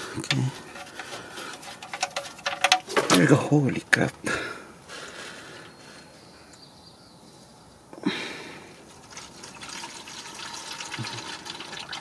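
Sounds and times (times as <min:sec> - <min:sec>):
oil pouring into a pan: 0:08.9 - 0:12.0.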